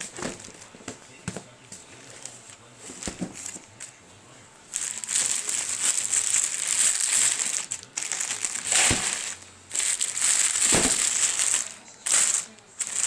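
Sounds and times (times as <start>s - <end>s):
plastic wrapping crinkling: 4.7s - 13.0s.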